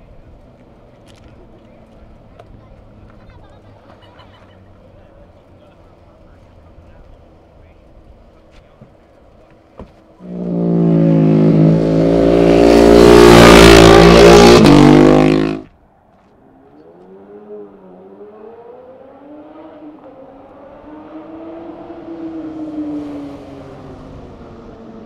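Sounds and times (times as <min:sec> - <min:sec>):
faint distant engine: 0:00.0 - 0:25.0
motorcycle engine running: 0:10.1 - 0:15.7.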